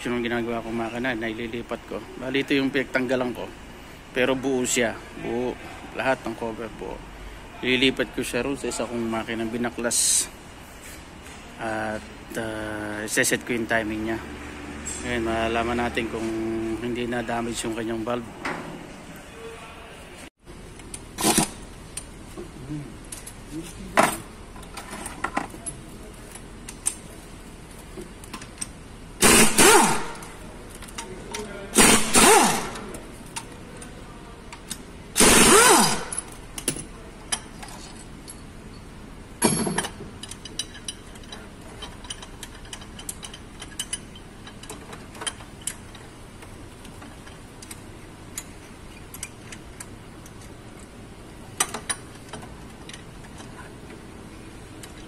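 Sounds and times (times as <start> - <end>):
ratchet wrench clicking: 34.6 - 37.5, 40.2 - 46.0
small metal clicks: 39.7 - 50.9.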